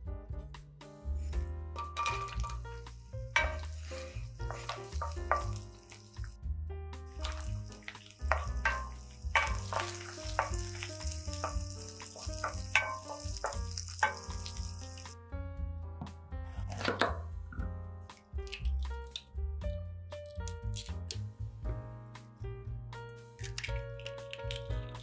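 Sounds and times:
background music: 0.0s - 25.0s
wooden spatula stirring: 1.8s - 6.3s, 7.1s - 15.2s
onions sizzling in a frying pan: 2.0s - 6.4s, 7.1s - 15.2s.

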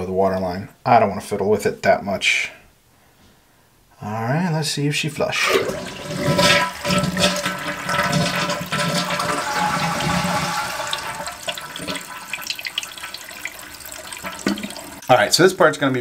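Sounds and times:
toilet flushing: 5.3s - 15.2s.

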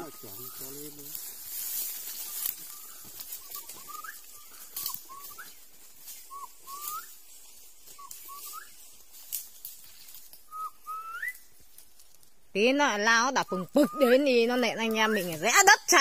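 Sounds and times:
footsteps in dry leaves: 0.0s - 12.5s.

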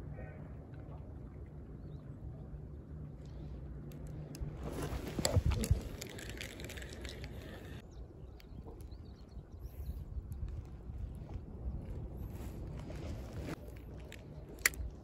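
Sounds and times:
fishing rod and reel rustling: 3.9s - 7.8s.

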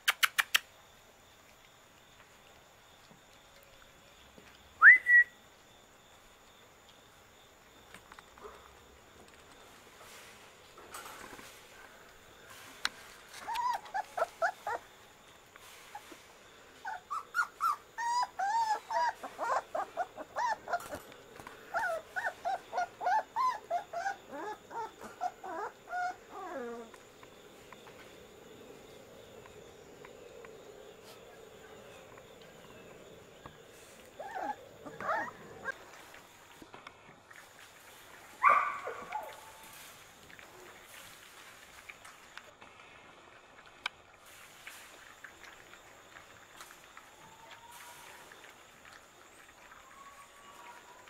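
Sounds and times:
puppies whimpering and whining: 13.3s - 14.9s, 16.8s - 27.0s, 33.9s - 35.9s
puppy yelp: 13.4s - 14.8s, 16.8s - 21.0s, 21.7s - 26.9s, 34.2s - 35.8s.

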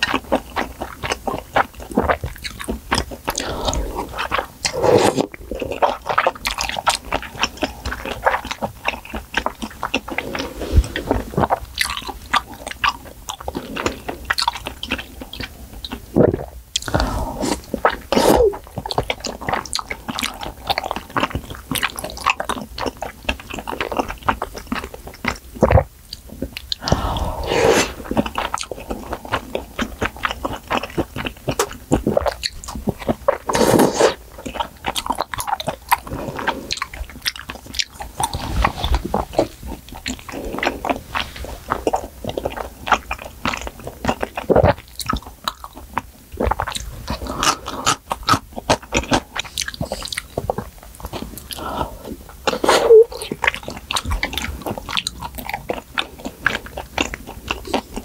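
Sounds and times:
close chewing and biting: 0.0s - 58.0s
wet mouth clicks: 2.0s - 7.3s, 24.0s - 58.0s.

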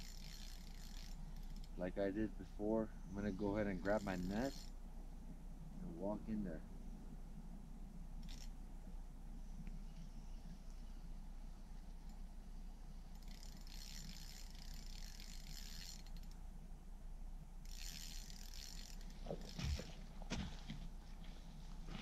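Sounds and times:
fishing reel clicking: 0.0s - 1.8s, 3.6s - 4.8s, 8.2s - 8.5s, 13.0s - 16.4s, 17.6s - 19.6s.

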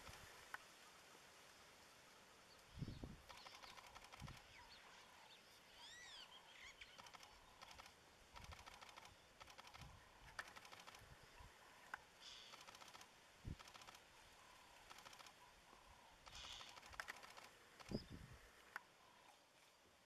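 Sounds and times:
rapid faint clicking: 3.2s - 4.6s, 6.9s - 11.1s, 11.8s - 14.1s, 14.7s - 15.4s, 16.2s - 18.0s.

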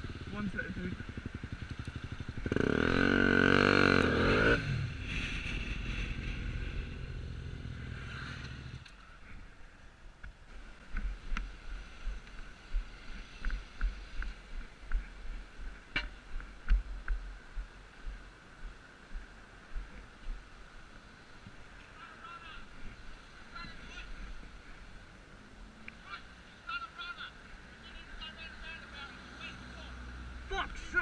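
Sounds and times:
motorcycle engine: 0.0s - 9.2s.

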